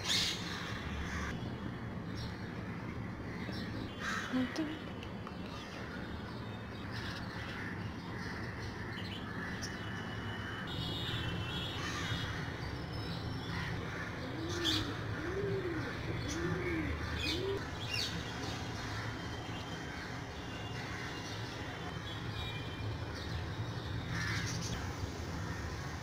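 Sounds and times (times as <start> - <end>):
dove cooing: 14.3 - 17.6.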